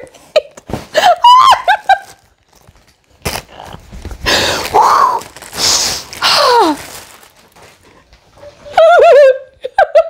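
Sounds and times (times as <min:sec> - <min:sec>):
plastic bag crinkling: 0:01.5 - 0:08.5.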